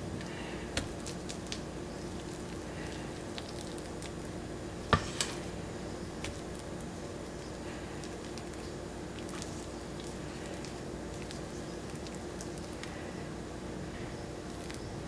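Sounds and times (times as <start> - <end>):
steady low hum: 0.0 - 15.0
squishy dollops of mashed potato: 6.2 - 13.0.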